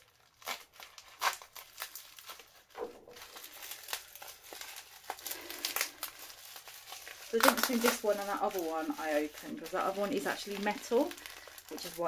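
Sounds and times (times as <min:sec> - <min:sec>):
plastic bag crinkling and tearing: 0:00.0 - 0:12.0.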